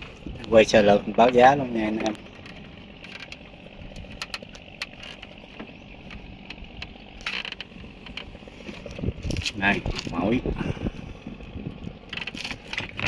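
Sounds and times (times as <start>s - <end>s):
low steady rumble: 0.0s - 13.0s
light clicks and knocks: 0.4s - 10.3s.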